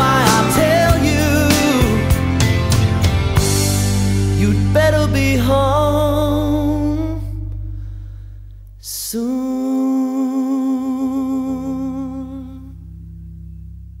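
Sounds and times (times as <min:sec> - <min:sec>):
background music: 0:00.0 - 0:08.0.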